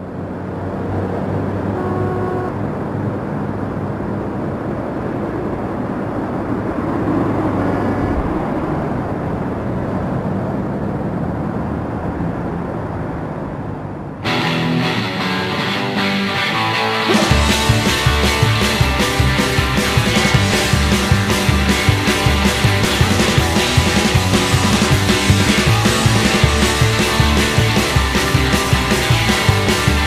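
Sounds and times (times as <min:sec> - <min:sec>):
city traffic noise: 0:00.0 - 0:30.0
brief high tones: 0:01.8 - 0:02.6.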